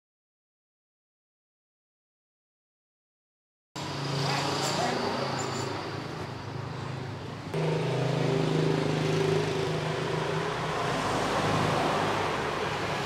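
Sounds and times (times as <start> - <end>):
road traffic noise: 3.8 - 13.0.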